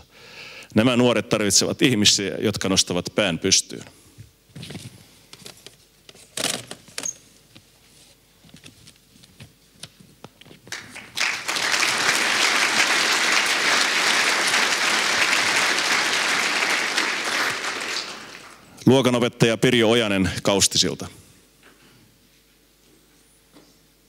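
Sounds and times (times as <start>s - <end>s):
audience applause: 10.7s - 18.7s.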